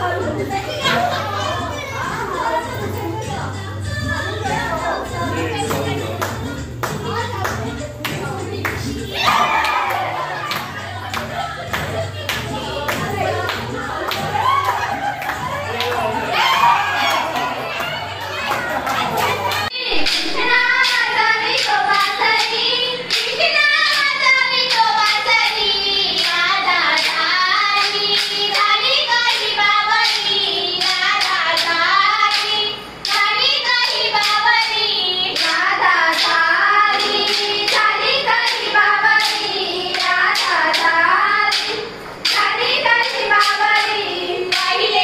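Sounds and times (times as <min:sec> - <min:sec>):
high voices singing folk song: 0:19.4 - 0:45.0.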